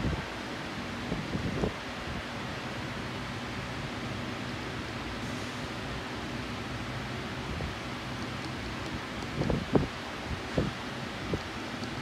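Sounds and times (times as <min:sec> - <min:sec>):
faint ticks: 0:11.4 - 0:12.0.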